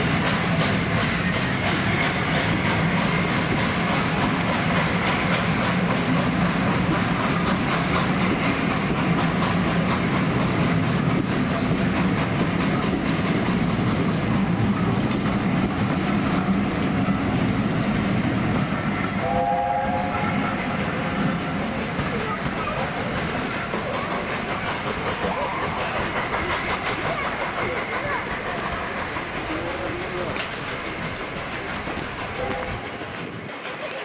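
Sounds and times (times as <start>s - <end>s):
train wheels rumbling on rails: 0.0s - 34.0s
multi-note train whistle: 19.1s - 21.2s.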